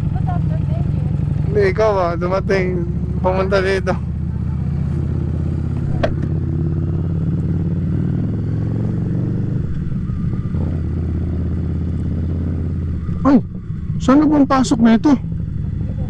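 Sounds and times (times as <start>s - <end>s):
motorcycle engine running: 0.0s - 16.0s.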